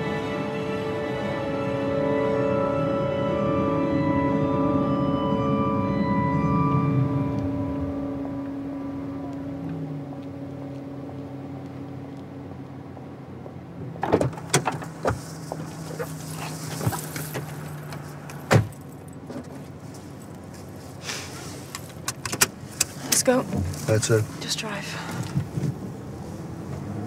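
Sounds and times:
steady low hum: 0.0s - 14.0s
car door shutting: 13.8s - 19.6s.

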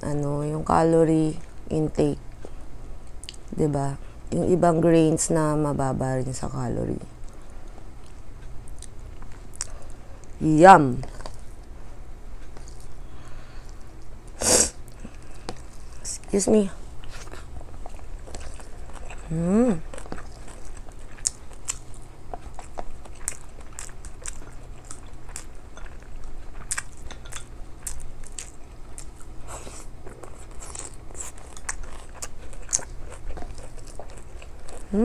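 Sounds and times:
chewing with wet clicks: 2.3s - 3.6s, 7.1s - 10.4s, 12.4s - 14.1s, 17.0s - 35.0s
rising voiced hum: 14.3s - 20.4s, 34.5s - 35.0s.

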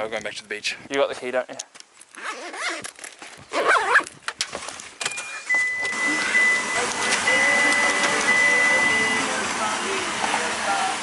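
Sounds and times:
handling and rustling: 1.0s - 6.0s
car running hiss: 6.0s - 11.0s.

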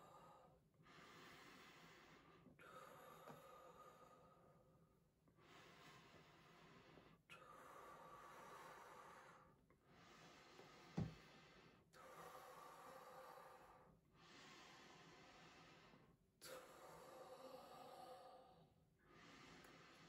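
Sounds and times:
breathing through the nose: 0.0s - 4.6s, 5.4s - 20.0s
soft low thump: 11.0s - 11.2s.

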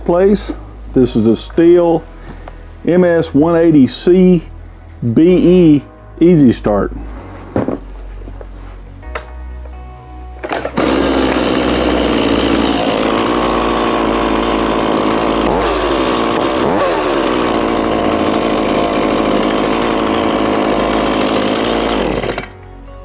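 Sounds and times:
chainsaw engine running: 10.4s - 22.6s
recoil cord pull: 10.4s - 22.6s.

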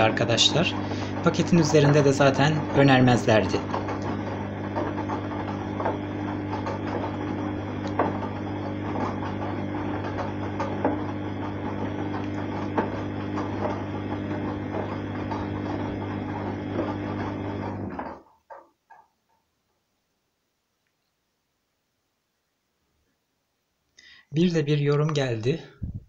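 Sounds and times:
washing machine motor humming: 0.0s - 19.1s.

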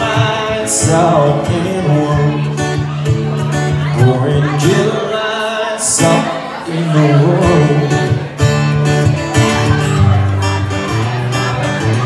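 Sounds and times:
man singing: 0.0s - 8.8s
acoustic guitar strumming: 0.0s - 12.0s.

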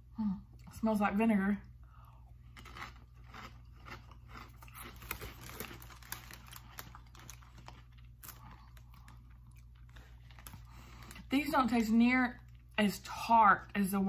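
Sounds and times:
person chewing crunchy chips: 2.0s - 11.3s.

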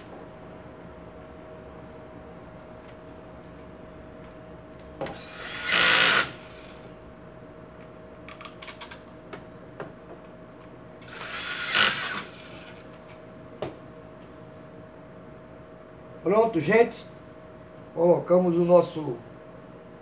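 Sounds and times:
power screwdriver driving screws: 5.1s - 6.8s, 11.0s - 12.8s.

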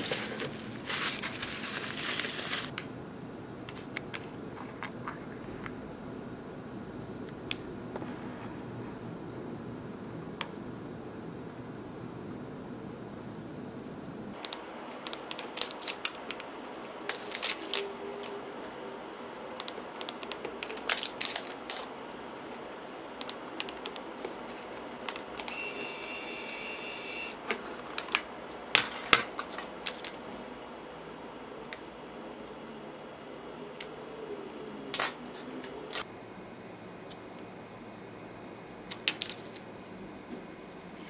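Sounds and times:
label printer whirring: 23.3s - 27.5s.

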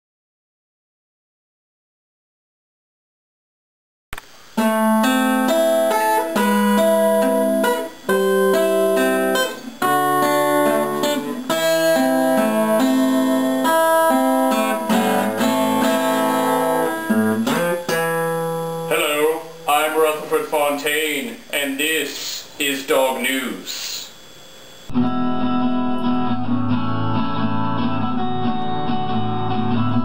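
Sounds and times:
acoustic guitar chords: 4.5s - 23.2s, 24.9s - 30.0s.

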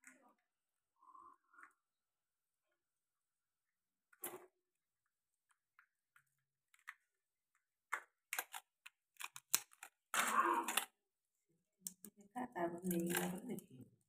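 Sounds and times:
crab shell clicks and crackles: 5.7s - 11.0s, 11.8s - 12.2s, 12.8s - 13.7s.

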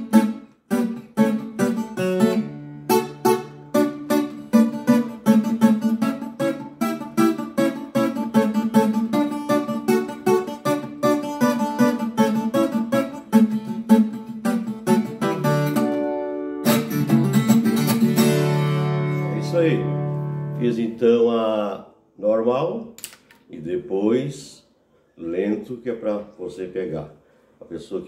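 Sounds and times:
loud guitar chord ringing: 0.0s - 20.6s
folk guitar picked fingerstyle: 0.0s - 21.2s.

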